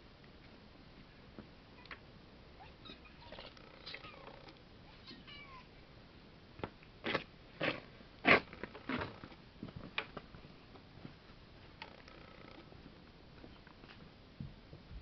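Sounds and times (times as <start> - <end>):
cat meowing faintly: 2.6 - 5.7.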